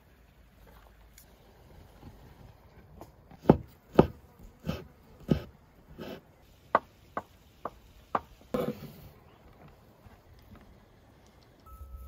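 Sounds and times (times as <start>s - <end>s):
knife chopping on wooden board: 3.4s - 6.2s.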